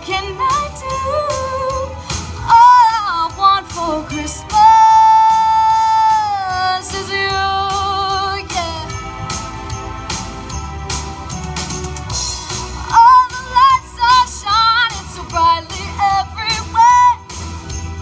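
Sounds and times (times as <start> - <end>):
girl singing through microphone: 0.0 - 9.0, 12.9 - 17.2
backing music with steady beat: 0.0 - 18.0.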